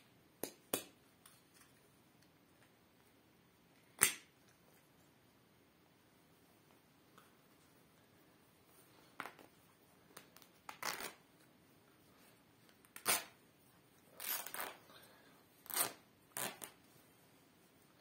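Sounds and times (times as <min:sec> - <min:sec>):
fabric ripping: 0:10.4 - 0:11.2, 0:12.9 - 0:13.4, 0:14.2 - 0:14.8, 0:15.6 - 0:16.8.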